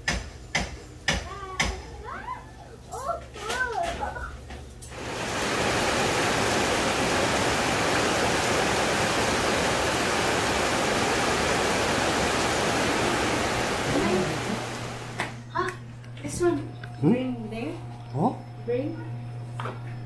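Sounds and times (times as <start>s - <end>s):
rain on metal roofs: 4.8s - 15.4s
rain on leaves: 4.9s - 15.4s.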